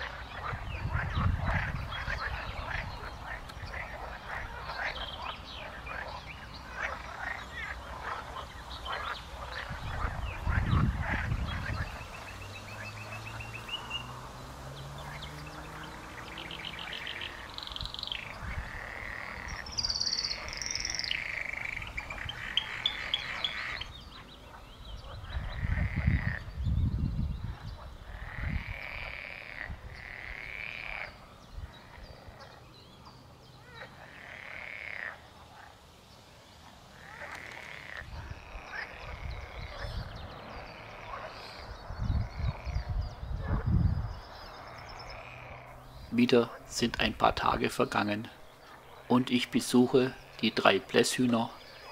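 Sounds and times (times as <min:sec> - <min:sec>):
frogs croaking: 0:00.0 - 0:51.9
high arched bird calls: 0:00.0 - 0:51.9.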